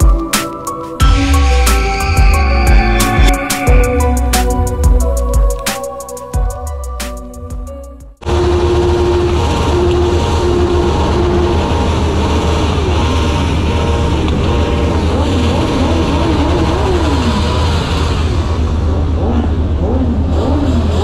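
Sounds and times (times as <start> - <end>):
steady low rumble: 1.0 - 20.3
car engines revving: 8.2 - 21.0.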